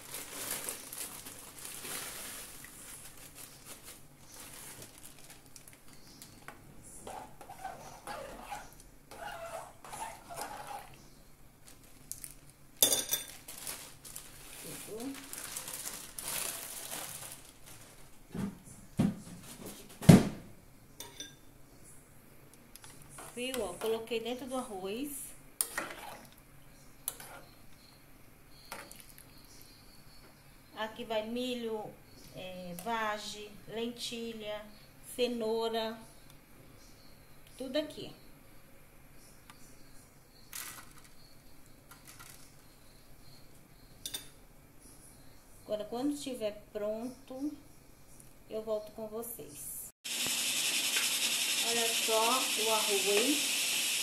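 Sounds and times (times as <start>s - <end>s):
gas stove hiss: 50.1s - 54.0s.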